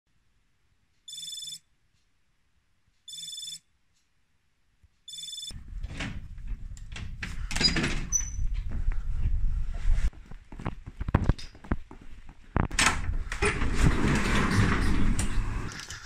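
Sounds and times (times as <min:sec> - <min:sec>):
rapid high alarm beeps: 0:01.1 - 0:01.6, 0:03.1 - 0:03.6, 0:05.1 - 0:05.5.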